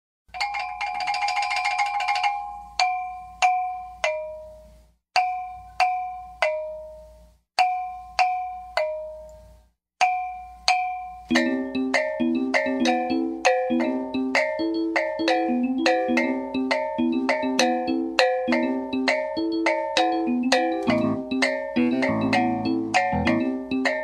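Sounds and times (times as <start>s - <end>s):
mallet instrument notes: 10.0s - 24.0s.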